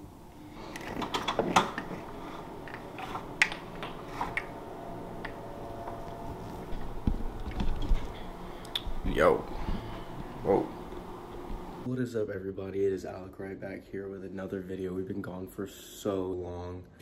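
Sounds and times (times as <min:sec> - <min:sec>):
window blind slats clicking: 0:00.6 - 0:06.2.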